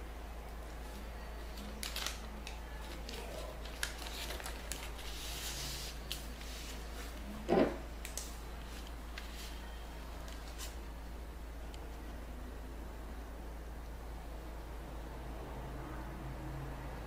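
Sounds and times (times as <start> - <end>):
paper rustling and crinkling: 0.9 - 7.3, 8.1 - 10.8.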